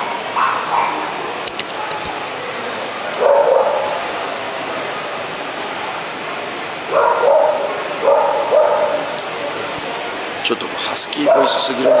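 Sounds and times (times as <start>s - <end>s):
hall noise: 0.0s - 12.0s
dog yipping and barking: 3.2s - 3.9s, 6.9s - 9.0s, 11.2s - 12.0s.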